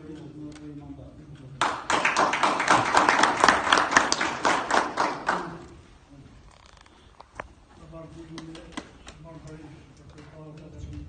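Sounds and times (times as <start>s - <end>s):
audience applauding: 1.6s - 5.8s.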